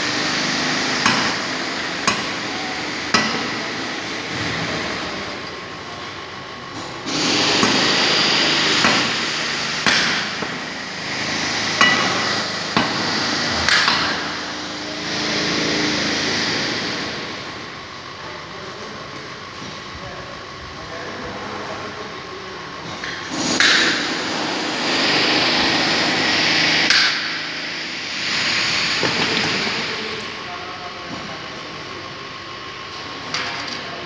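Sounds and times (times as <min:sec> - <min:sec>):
sharp metallic knocks: 0:03.1 - 0:03.6, 0:08.8 - 0:10.7, 0:11.7 - 0:14.4.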